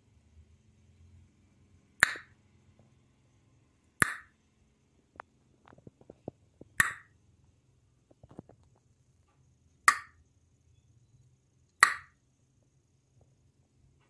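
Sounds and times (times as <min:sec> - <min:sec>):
hand claps: 0:11.8 - 0:12.1.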